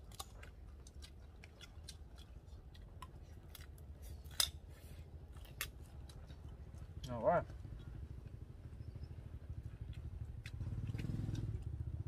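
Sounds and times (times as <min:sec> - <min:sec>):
people eating crispy food: 0:00.0 - 0:07.9.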